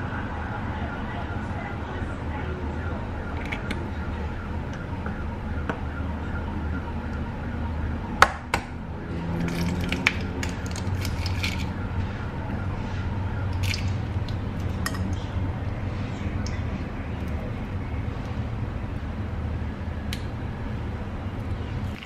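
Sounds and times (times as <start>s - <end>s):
eggshell crackling: 9.4s - 11.7s, 13.5s - 14.8s.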